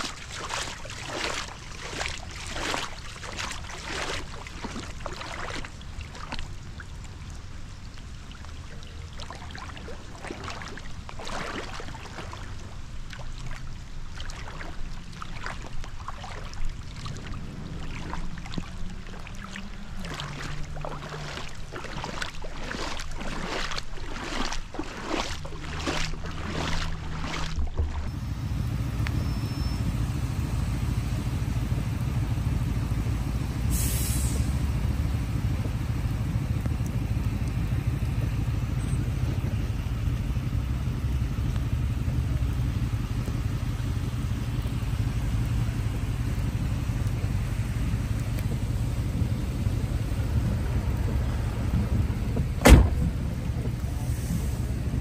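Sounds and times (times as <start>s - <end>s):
floodwater flowing and splashing: 0.0s - 55.0s.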